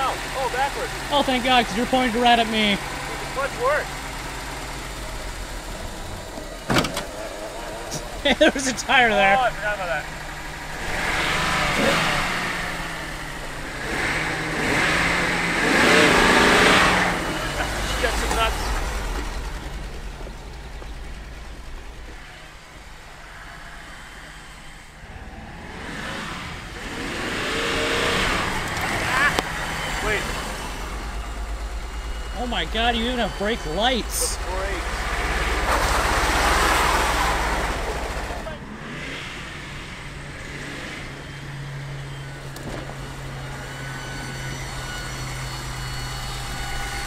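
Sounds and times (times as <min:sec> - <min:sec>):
car engine running: 0:00.0 - 0:47.0.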